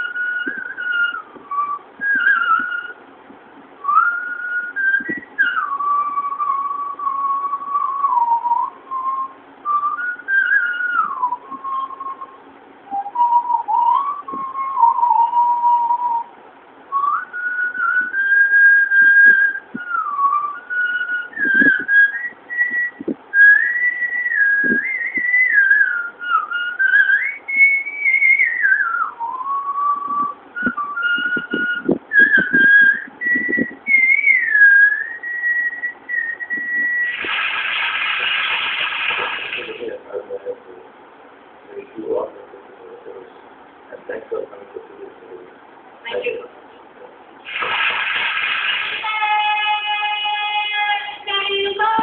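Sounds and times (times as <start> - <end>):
woman whistling a tune: 0.0 - 3.0, 3.8 - 16.3, 16.9 - 37.2
burst of noise: 36.7 - 40.0, 47.4 - 49.8.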